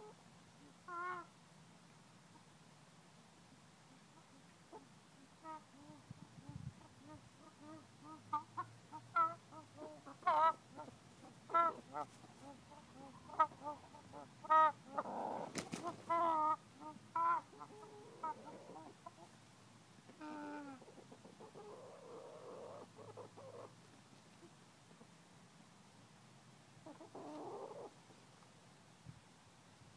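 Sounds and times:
hens clucking: 0:04.2 - 0:19.4, 0:20.1 - 0:25.1, 0:26.8 - 0:28.0.

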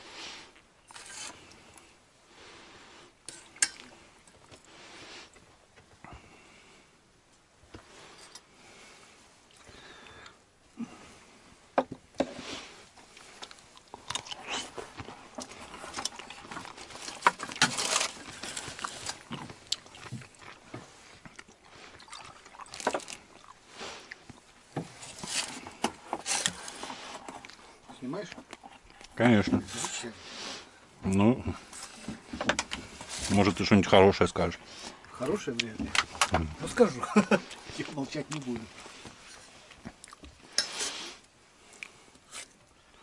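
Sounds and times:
rustling: 0:12.2 - 0:30.8
chewing: 0:13.0 - 0:24.5, 0:25.1 - 0:29.2, 0:37.5 - 0:40.6.

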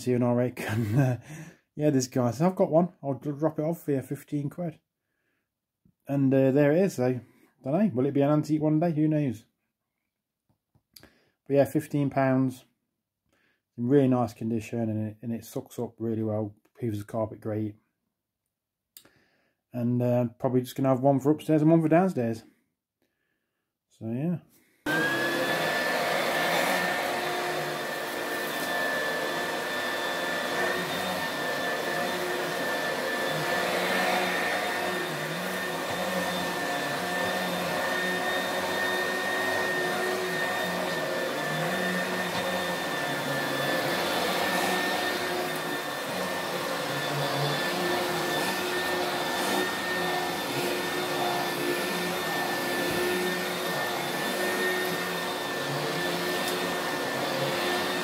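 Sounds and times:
vacuum cleaner running: 0:24.9 - 0:58.0.

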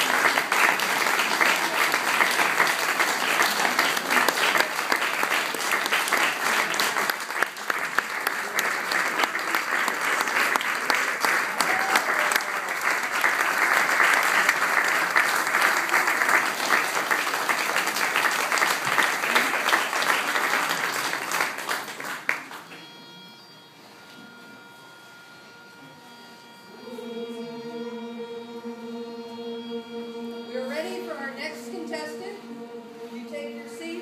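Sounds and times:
audience applauding: 0:00.0 - 0:22.8.

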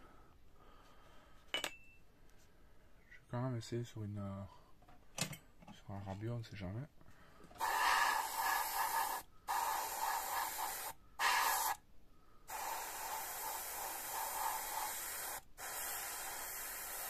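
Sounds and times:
airbrush spraying hiss: 0:07.6 - 0:11.8, 0:12.5 - 0:17.0.

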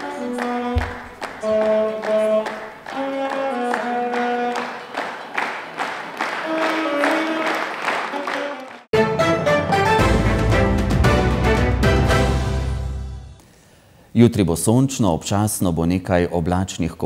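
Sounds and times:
saxophone melody: 0:00.0 - 0:04.7, 0:06.4 - 0:12.4
people clapping along: 0:00.0 - 0:08.9.

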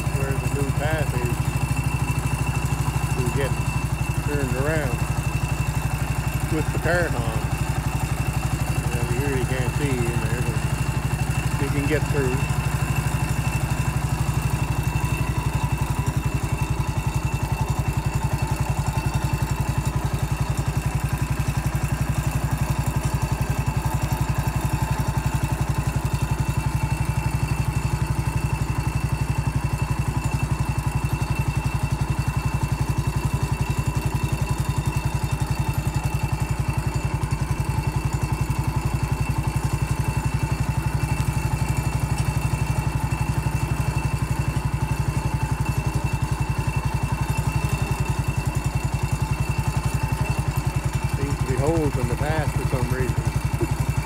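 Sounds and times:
garden tractor engine running: 0:00.0 - 0:54.0.

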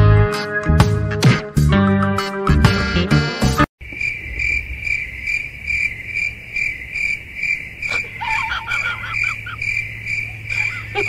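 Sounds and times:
cricket chirping: 0:03.8 - 0:11.0.

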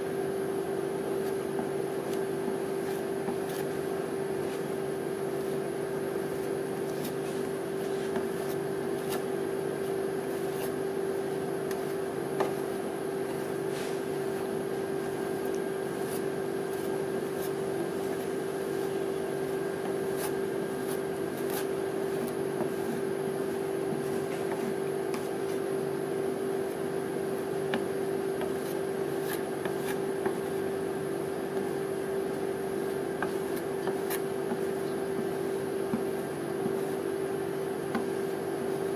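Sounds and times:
refrigeration unit humming: 0:00.0 - 0:38.9.

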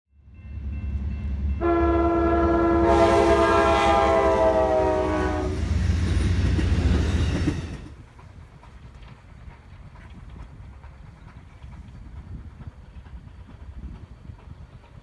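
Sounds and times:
passing train clatter: 0:00.2 - 0:15.0
locomotive horn blast: 0:01.6 - 0:05.8.

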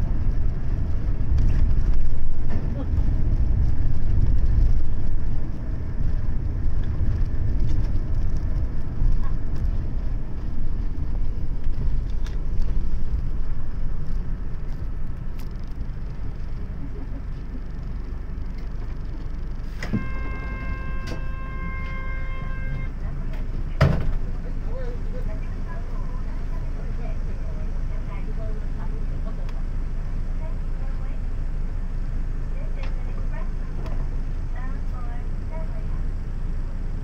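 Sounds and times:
bus engine and road rumble: 0:00.0 - 0:37.0.

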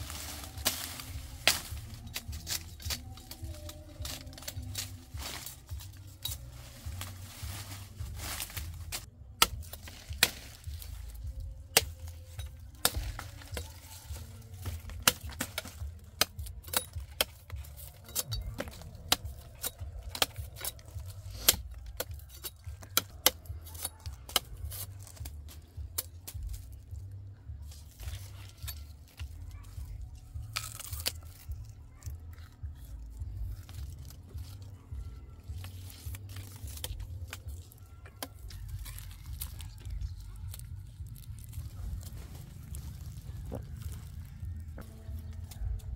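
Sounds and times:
biting and tearing cane: 0:00.0 - 0:45.9
knife cracking and scraping sugarcane: 0:00.0 - 0:45.9
steady low rumble: 0:38.5 - 0:45.9.

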